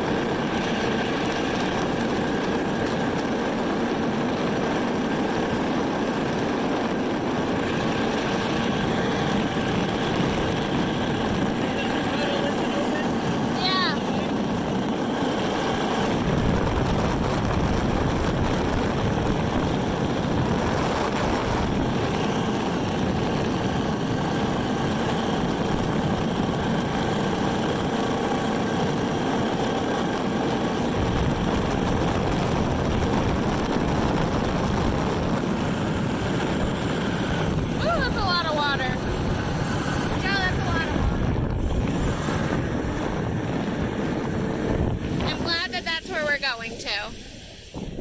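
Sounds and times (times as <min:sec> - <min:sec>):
boat engine drone: 0:00.0 - 0:48.0
water rushing: 0:45.0 - 0:48.0.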